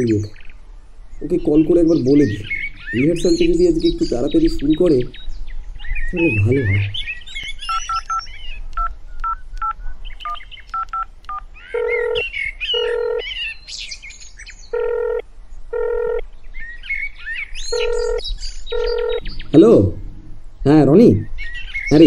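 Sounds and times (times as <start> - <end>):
birds chirping: 0.0 - 22.0
phone keypad beeps: 10.7 - 12.2, 12.8 - 13.2, 14.8 - 15.2, 15.8 - 16.2, 17.7 - 19.2
phone ringback tone: 11.8 - 12.2, 12.8 - 13.2, 14.7 - 16.2, 17.7 - 19.2.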